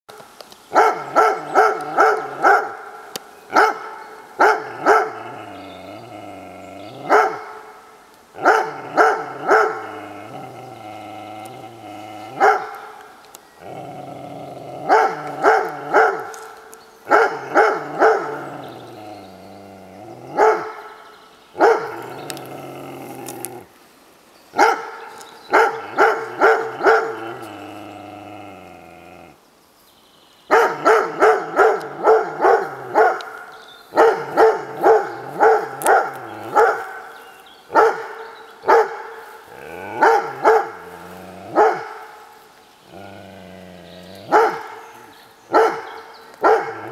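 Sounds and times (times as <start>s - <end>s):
dog barking: 0.8s - 2.9s, 3.5s - 5.2s, 7.0s - 7.8s, 8.4s - 9.9s, 12.4s - 12.8s, 14.9s - 16.4s, 17.1s - 18.5s, 20.3s - 20.9s, 21.6s - 22.0s, 24.6s - 27.2s, 30.5s - 37.1s, 37.7s - 39.2s, 40.0s - 40.9s, 41.5s - 42.2s, 44.3s - 44.8s, 45.5s - 46.9s.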